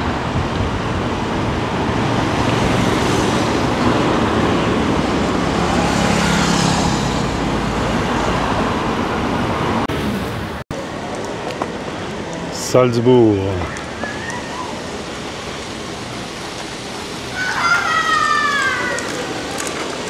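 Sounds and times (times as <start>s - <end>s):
car passing close: 0.0s - 10.6s
road traffic: 0.0s - 20.0s.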